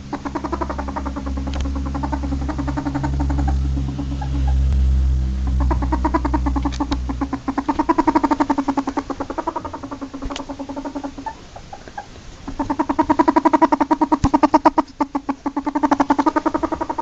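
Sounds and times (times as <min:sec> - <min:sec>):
low rumble: 0:00.0 - 0:11.2
ferret dooking: 0:00.0 - 0:17.0.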